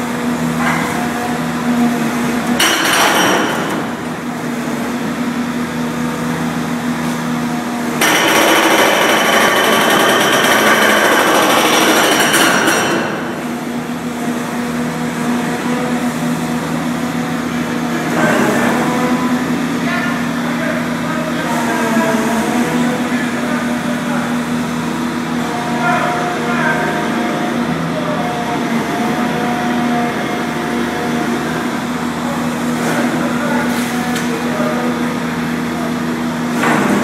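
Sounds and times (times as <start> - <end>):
machine running hum: 0.0 - 37.0
hydraulic breaker hammering rock: 2.6 - 4.0, 8.0 - 13.5.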